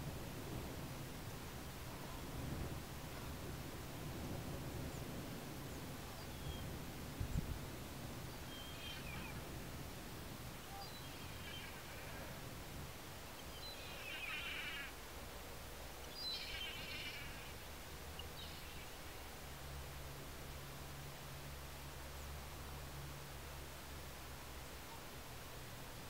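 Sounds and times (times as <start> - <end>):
bird giving quavering calls: 13.6 - 14.9.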